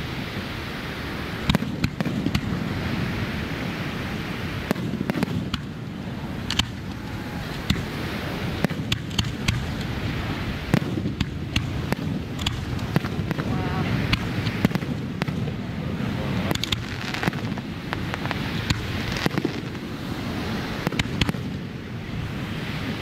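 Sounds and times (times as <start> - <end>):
low rushing background: 0.0 - 23.0
fireworks bangs: 1.1 - 23.0.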